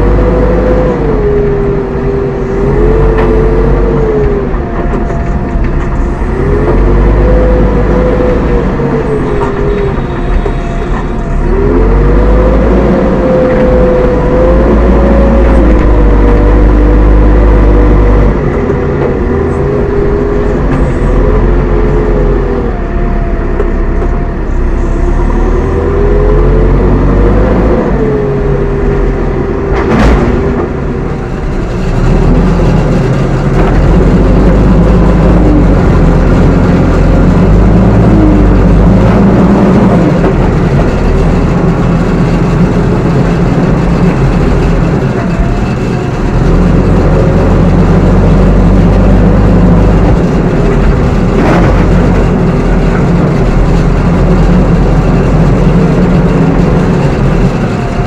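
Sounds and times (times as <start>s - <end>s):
diesel engine running hard: 0.0s - 58.0s.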